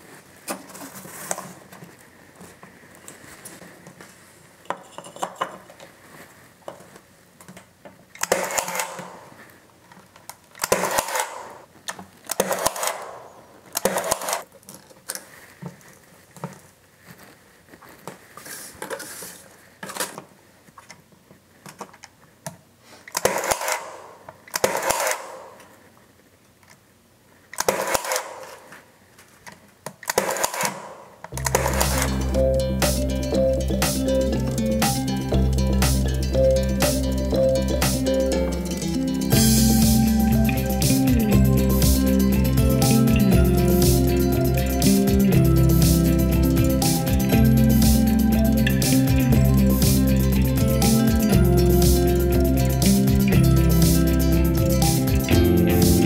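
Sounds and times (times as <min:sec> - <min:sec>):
pin nailer shots: 0:08.2 - 0:09.3, 0:10.6 - 0:11.6, 0:12.3 - 0:14.4, 0:23.1 - 0:25.7, 0:27.6 - 0:28.7, 0:30.0 - 0:32.1.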